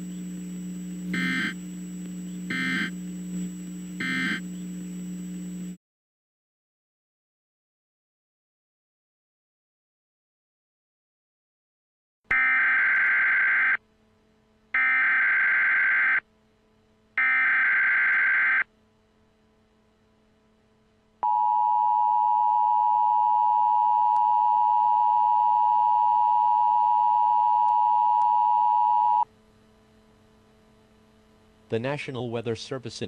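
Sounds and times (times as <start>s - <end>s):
screeching digital data bursts: 1.1s - 1.6s, 2.3s - 3.0s, 4.0s - 4.8s.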